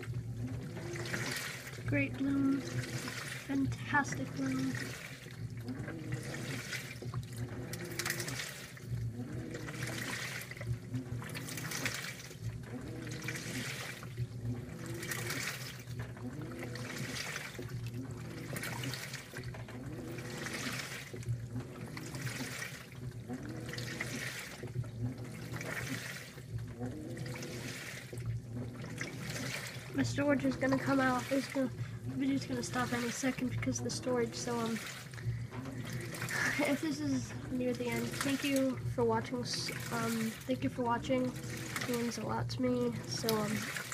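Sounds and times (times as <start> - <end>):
washer motor hum: 0.0 - 43.9
water and clothes swishing: 0.0 - 43.9.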